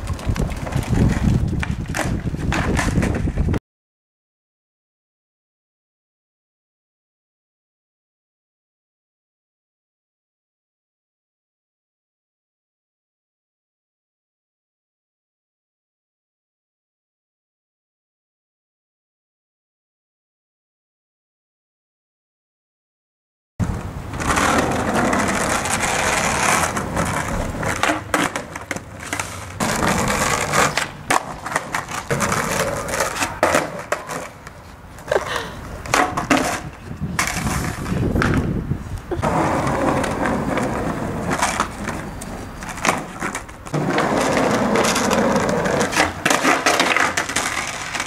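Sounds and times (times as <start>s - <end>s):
skateboard deck clacks: 0.0s - 3.5s, 23.6s - 38.5s, 39.2s - 48.0s
skateboard wheels rolling on asphalt: 0.0s - 3.6s, 23.6s - 48.0s
skateboard tail pops: 0.1s - 3.5s.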